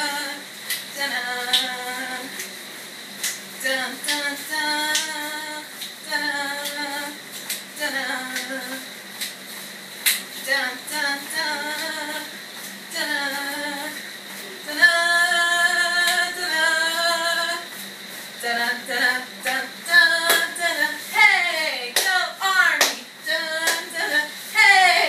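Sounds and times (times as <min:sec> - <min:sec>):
woman singing unaccompanied: 0:00.0 - 0:02.4, 0:03.6 - 0:07.2, 0:07.8 - 0:08.9, 0:10.4 - 0:14.0, 0:14.6 - 0:17.7, 0:18.4 - 0:25.0
sharp hand claps: 0:21.9 - 0:22.2, 0:22.8 - 0:23.0, 0:23.6 - 0:23.9.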